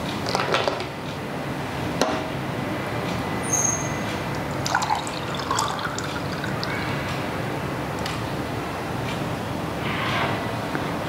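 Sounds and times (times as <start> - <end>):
juice pouring into a glass: 4.4 - 6.8.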